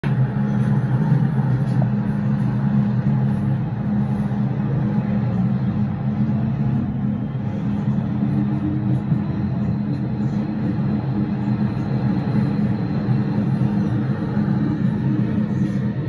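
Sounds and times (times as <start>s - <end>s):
metro train low rumble: 0.0s - 16.0s.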